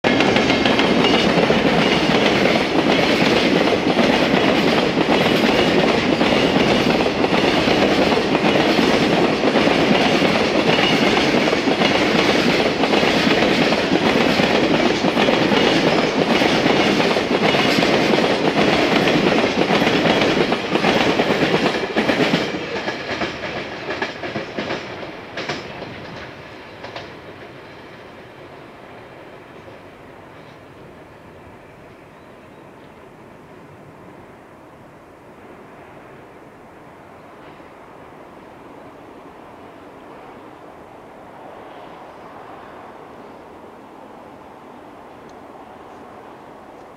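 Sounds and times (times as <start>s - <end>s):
train wheels clickety-clack: 0.0s - 29.8s
freight train rumble: 0.0s - 46.9s.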